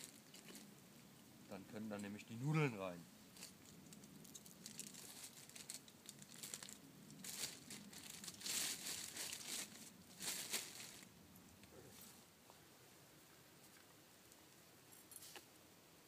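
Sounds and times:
plastic packaging crinkling: 3.4 - 11.1.

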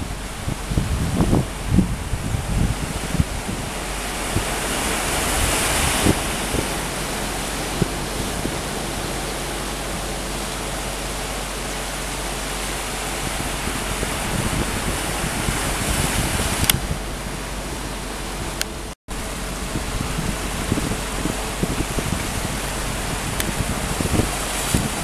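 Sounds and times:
wind buffeting microphone: 0.0 - 25.0
wind hiss: 0.0 - 25.0.

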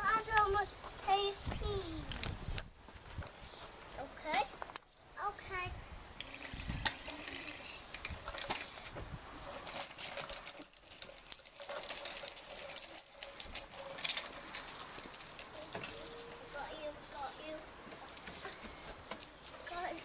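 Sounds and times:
plastic toy wheels rolling on bricks: 6.2 - 16.9, 17.9 - 20.0.

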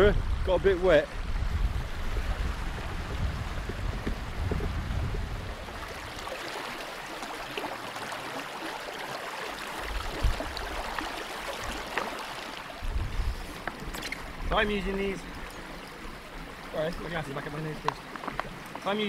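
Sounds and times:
wind rumbling on microphone: 0.0 - 6.4, 9.8 - 11.8, 12.7 - 17.1
stream trickling over stones: 1.3 - 19.0.

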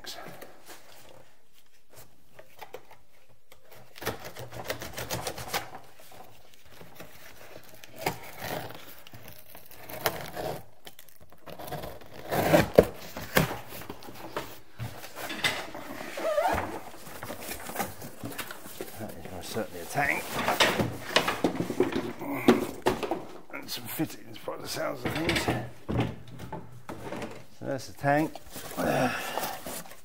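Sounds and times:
knife slitting packing tape: 3.8 - 5.8
cardboard scraping and rustling: 11.4 - 23.4.

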